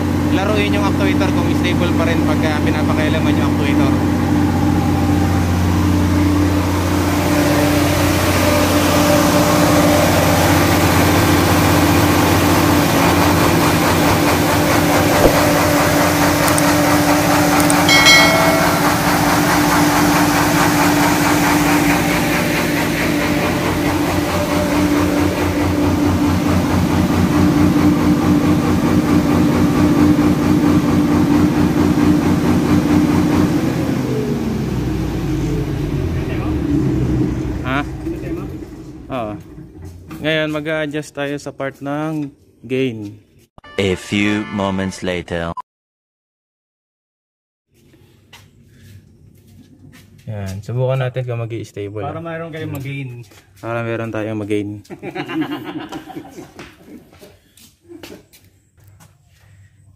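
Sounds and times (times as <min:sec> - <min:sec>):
engine shutting down: 0:00.0 - 0:41.0
diesel generator running: 0:00.0 - 0:41.2
short electronic chime: 0:17.9 - 0:19.4.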